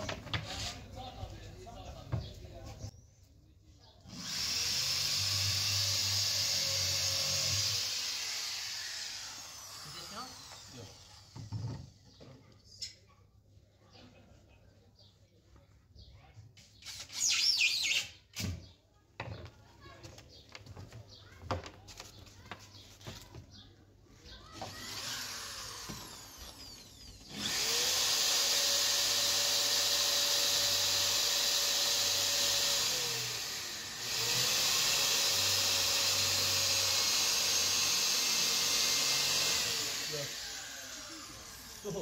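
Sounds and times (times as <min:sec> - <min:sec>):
electric power tool motor: 0:04.1 - 0:11.6, 0:24.6 - 0:42.0.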